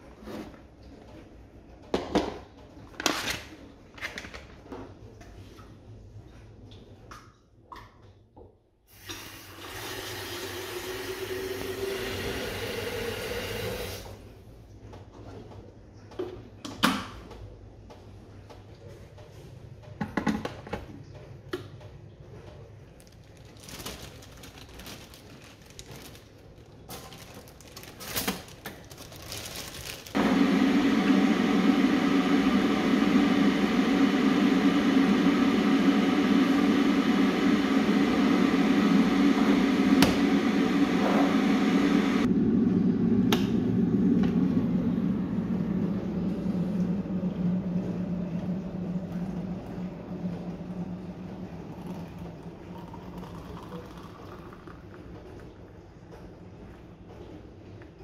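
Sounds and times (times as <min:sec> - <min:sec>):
kettle heating rumble and hiss: 0:30.2 - 0:55.9.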